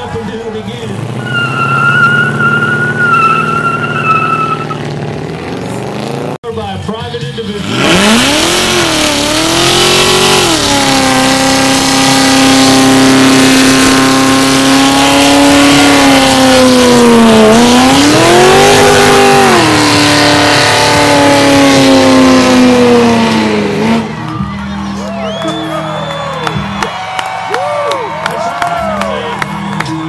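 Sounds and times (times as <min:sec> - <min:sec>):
tyres spinning on asphalt: 0:00.0 - 0:05.6
car engine revving hard: 0:00.8 - 0:06.4, 0:07.6 - 0:24.4.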